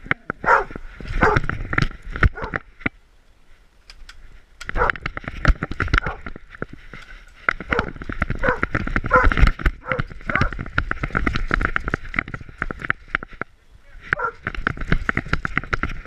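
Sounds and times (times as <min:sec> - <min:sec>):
camera knocking and rattling: 0:00.0 - 0:03.0, 0:03.9 - 0:16.0.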